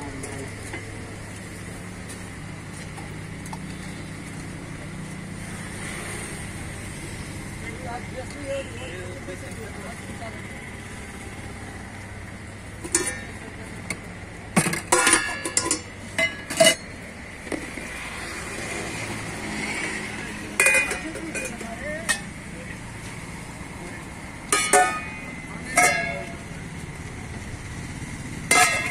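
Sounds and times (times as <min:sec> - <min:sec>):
road traffic hum: 0:00.0 - 0:28.9
ladles clinking on steel pots: 0:12.8 - 0:17.8, 0:20.5 - 0:22.5, 0:24.4 - 0:26.5, 0:28.5 - 0:28.9.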